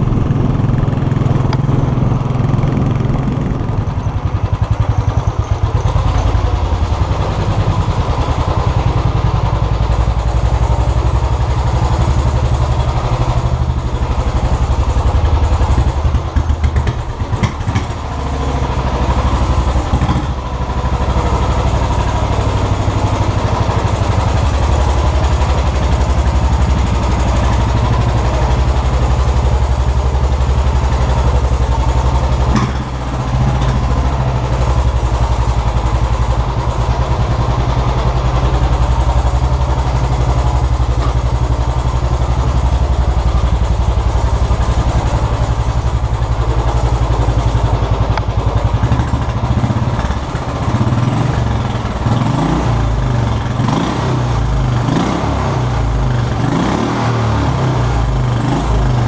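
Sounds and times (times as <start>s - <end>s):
motorcycle idling: 0.0s - 59.0s.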